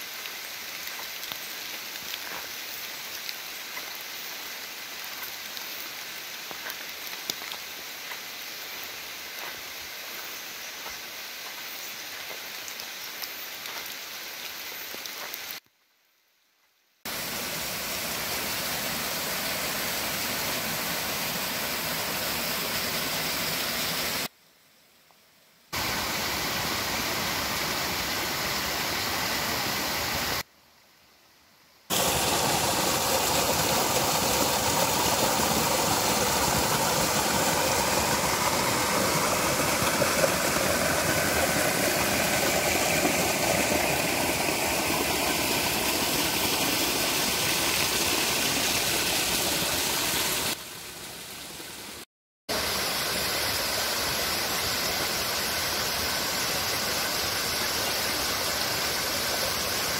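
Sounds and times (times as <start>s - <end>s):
stream cascading over rocks: 0.0s - 15.6s, 17.1s - 24.3s, 25.8s - 30.5s, 31.9s - 59.9s.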